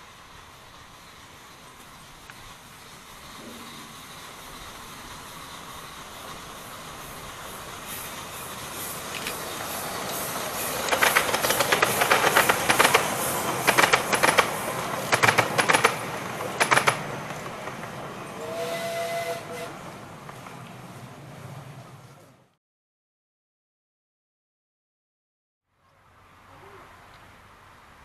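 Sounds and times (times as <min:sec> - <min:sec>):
train wheels clattering on rails: 0:00.0 - 0:22.4
steam whistle: 0:18.3 - 0:19.8.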